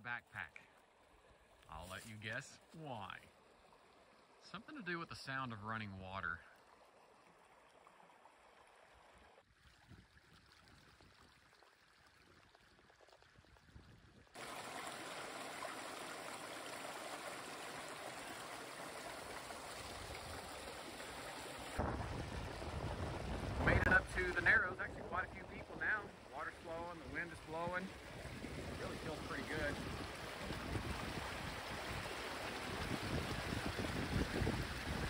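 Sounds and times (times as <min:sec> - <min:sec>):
water rushing over boulders: 0:14.4 - 0:35.0.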